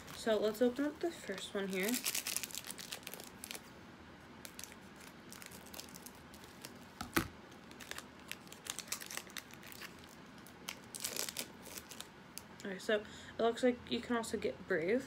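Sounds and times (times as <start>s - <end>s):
plastic wrapper crinkling and tearing: 0.0s - 3.7s, 4.4s - 12.7s.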